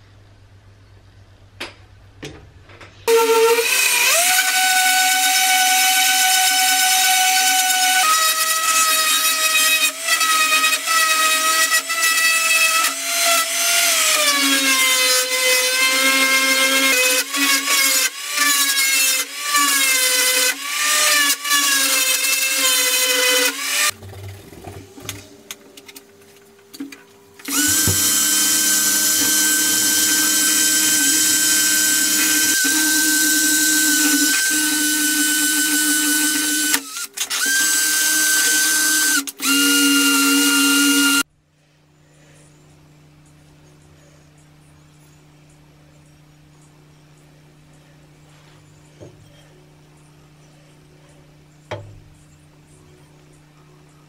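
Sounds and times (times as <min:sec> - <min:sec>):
high-speed rotary tool spinning: 0:03.1 - 0:24.0, 0:27.4 - 0:41.2
orbital sander on metal: 0:27.5 - 0:36.8.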